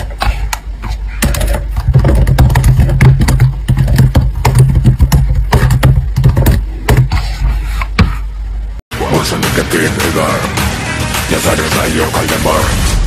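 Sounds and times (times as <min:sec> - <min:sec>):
low steady hum: 0:00.0 - 0:08.8.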